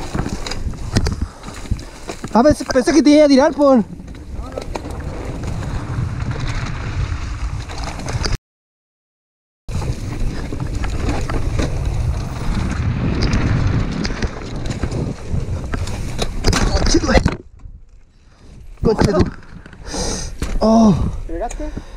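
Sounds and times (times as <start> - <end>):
bike rattling over bumps: 0.0 - 8.4, 9.7 - 21.9
wind buffeting microphone: 9.7 - 17.9.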